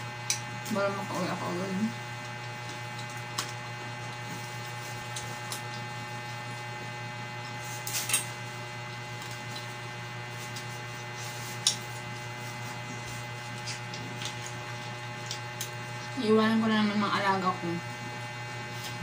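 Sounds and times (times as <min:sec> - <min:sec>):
electrical mains hum: 0:00.0 - 0:19.0.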